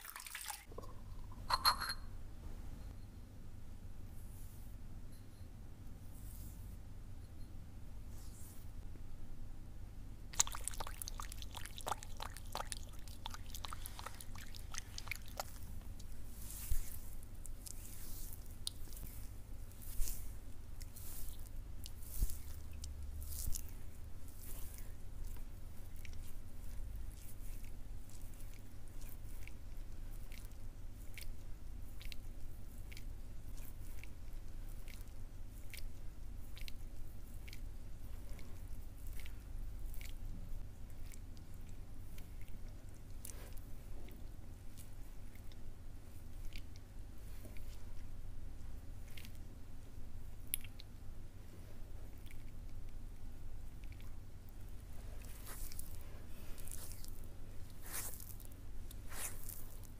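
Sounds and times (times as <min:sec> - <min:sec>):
low steady hum: 0:00.0 - 0:59.9
oiled hands rubbing skin: 0:10.4 - 0:25.5, 0:54.9 - 0:59.9.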